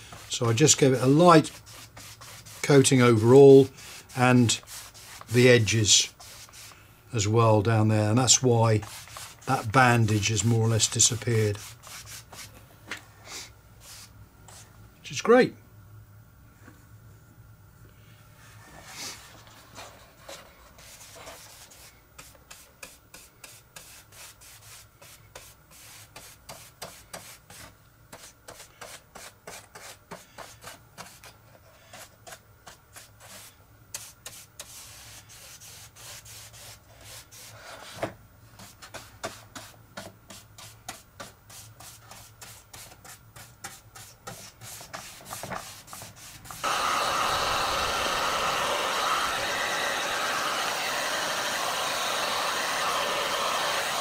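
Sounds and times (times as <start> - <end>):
paintbrush scrubbing: 1.0 - 3.0, 3.8 - 6.8, 8.8 - 12.5
heat gun blowing: 46.4 - 54.0.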